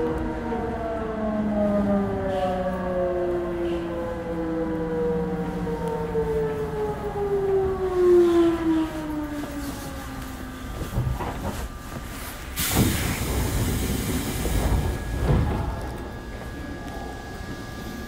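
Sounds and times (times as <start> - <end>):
electric train motor whine: 1.8 - 18.0
compressed air brake hiss: 12.1 - 14.9.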